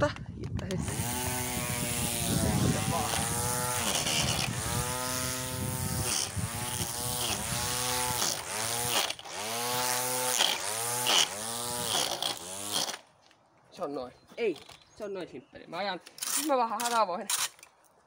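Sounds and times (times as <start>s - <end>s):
string trimmer motor whine: 0.8s - 13.0s.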